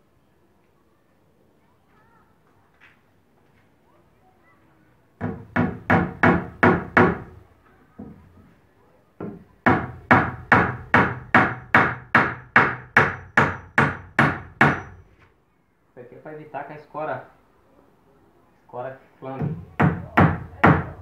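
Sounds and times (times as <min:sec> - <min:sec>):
hammer driving nails into wood: 0:09.2 - 0:15.0.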